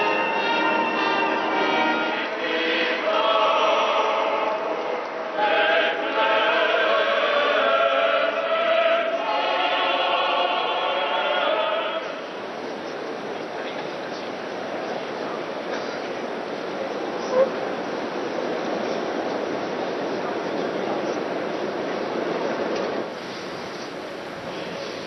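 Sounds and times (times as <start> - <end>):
choir singing long held notes: 0.0 - 12.5
even background noise: 0.0 - 25.0.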